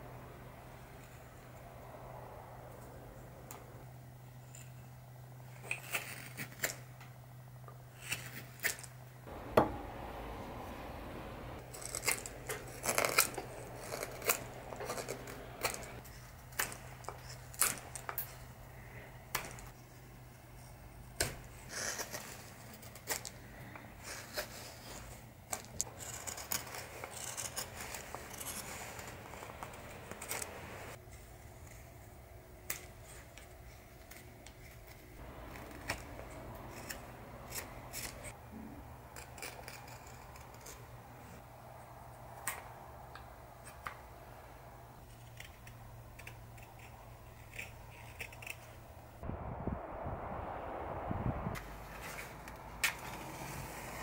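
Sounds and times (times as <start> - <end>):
knife carving wood: 5.5 - 6.8, 11.7 - 18.4, 25.8 - 30.8, 34.1 - 41.4, 45.0 - 49.0.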